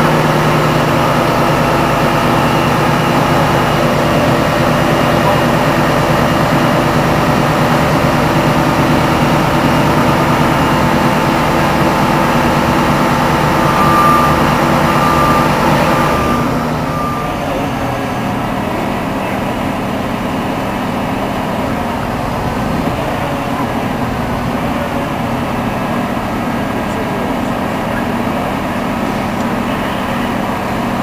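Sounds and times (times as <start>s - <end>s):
heavy diesel engine running: 0.0s - 31.0s
short warning beeps: 8.6s - 19.9s.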